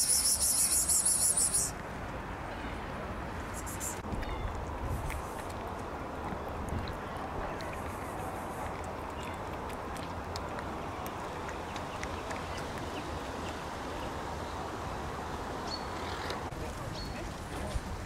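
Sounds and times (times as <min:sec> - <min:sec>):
cat chewing wet food: 0:08.6 - 0:12.9.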